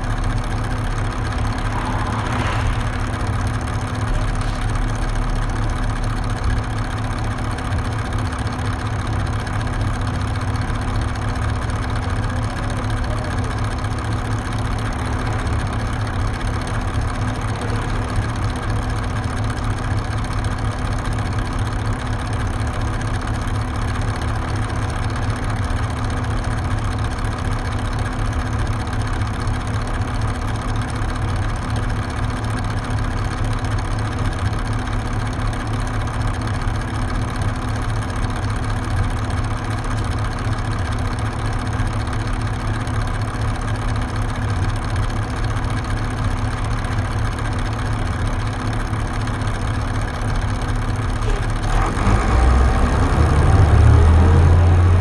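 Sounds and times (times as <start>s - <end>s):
bus engine revving: 0.0s - 5.7s, 51.2s - 55.0s
diesel bus engine idling: 0.0s - 55.0s.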